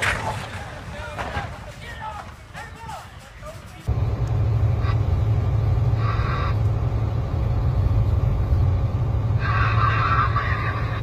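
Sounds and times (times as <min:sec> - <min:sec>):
truck rumbling on highway: 0:03.8 - 0:11.0.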